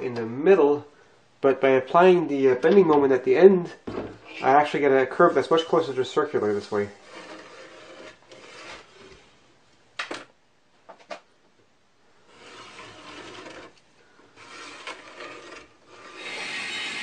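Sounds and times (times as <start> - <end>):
pencil scratching on wood: 6.5 - 9.2, 12.3 - 13.8, 14.4 - 17.0.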